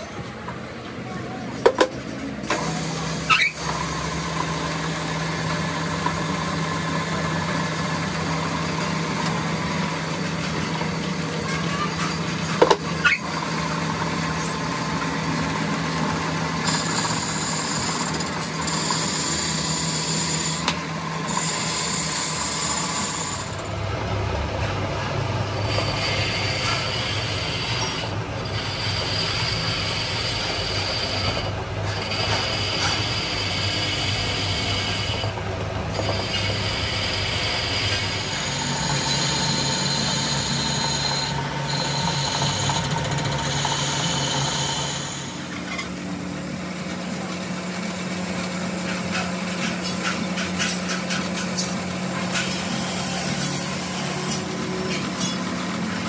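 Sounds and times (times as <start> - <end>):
metalworking machine humming: 0.0 - 56.0
scraping cutting noise: 25.5 - 46.0, 48.8 - 56.0.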